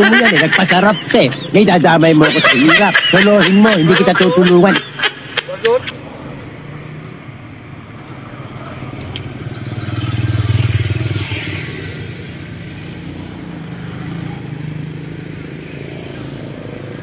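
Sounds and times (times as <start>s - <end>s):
car passing: 4.0s - 17.0s
motorcycle passing close: 5.9s - 17.0s.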